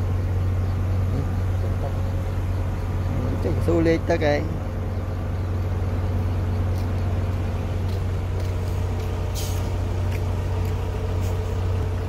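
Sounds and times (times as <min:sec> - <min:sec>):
truck engine humming: 0:00.0 - 0:12.0
short hissing bursts: 0:09.3 - 0:09.8.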